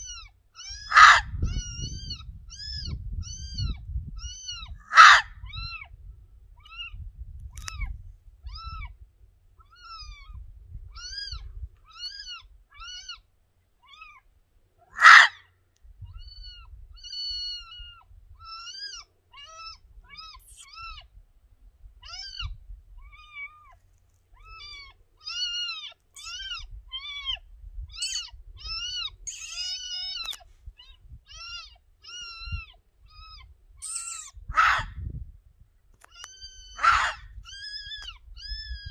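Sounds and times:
fox barking high yips: 0.0 - 5.9, 9.6 - 13.2, 14.8 - 15.5, 16.1 - 21.1, 22.0 - 35.1, 36.1 - 38.9.

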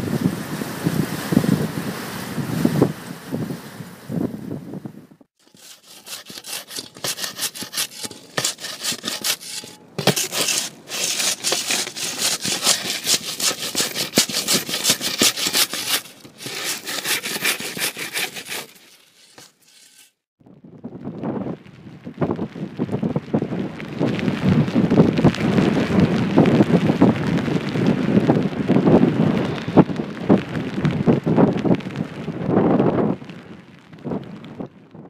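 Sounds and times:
scraping on rough surface: 5.4 - 20.3.

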